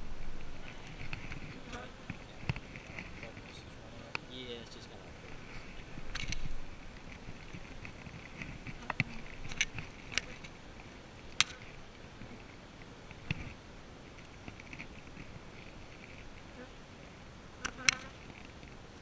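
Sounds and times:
honeybees buzzing: 0.0 - 13.6.

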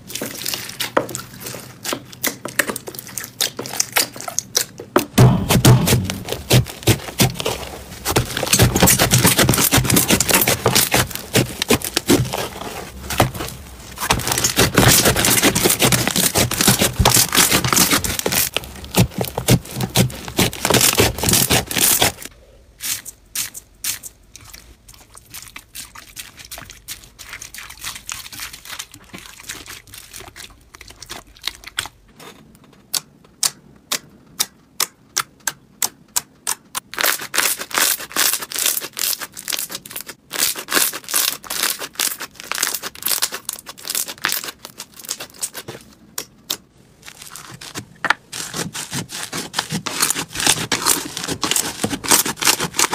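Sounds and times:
slime crackling when kneaded: 0.0 - 31.9, 36.4 - 52.9.

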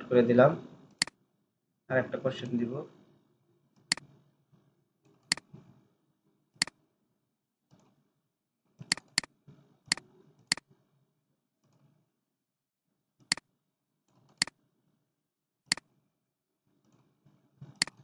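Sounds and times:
computer mouse clicking: 3.8 - 4.1, 5.2 - 5.5, 8.8 - 9.3, 9.9 - 10.7, 14.1 - 14.6, 15.7 - 15.9, 17.6 - 18.0.

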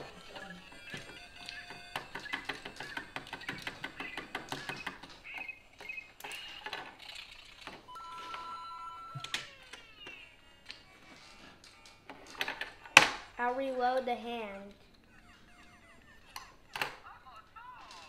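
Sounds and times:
two-note electronic tone: 7.9 - 9.5
falling electronic chirps: 7.9 - 10.1.

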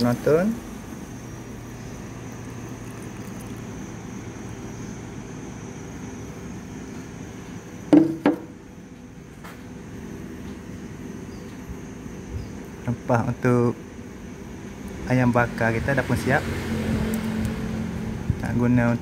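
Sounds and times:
steady low hum: 0.0 - 19.0
blender jug knocking on steel bowl: 7.9 - 8.5.

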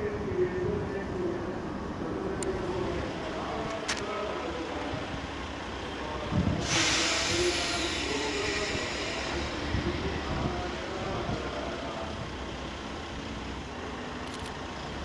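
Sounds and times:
diesel railcar rumbling: 0.0 - 15.0
air brakes hissing: 6.5 - 10.2.

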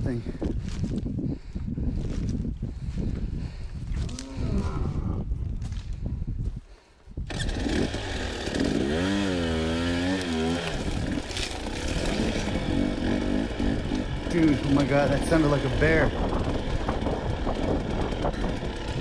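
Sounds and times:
dirt bike engine revving: 7.3 - 19.0.

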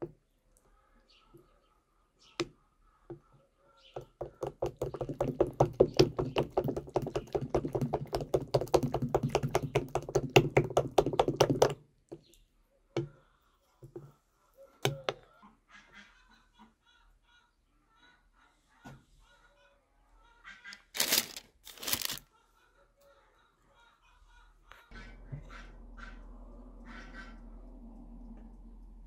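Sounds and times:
utensil beating batter in glass bowl: 4.0 - 12.2.

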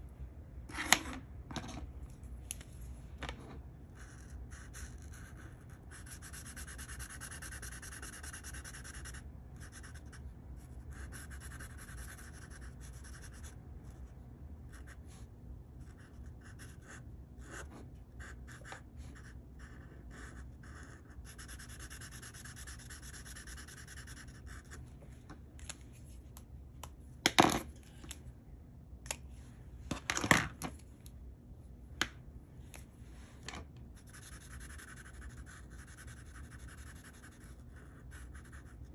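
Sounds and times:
marker scratching on paper: 4.0 - 14.1, 15.8 - 24.8, 34.0 - 38.8.

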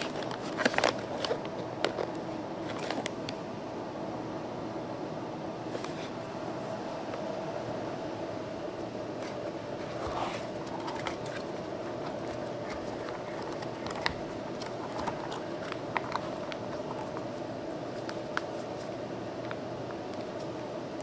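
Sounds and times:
packaging and parts clicking: 0.0 - 3.2, 10.4 - 17.3
steady background hum: 0.0 - 21.0.

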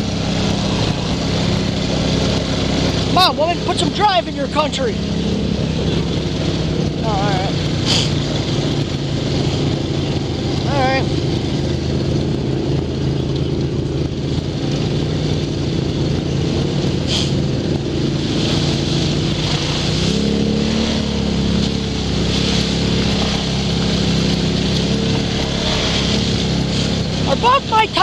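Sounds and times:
atv engine running: 0.0 - 28.0.

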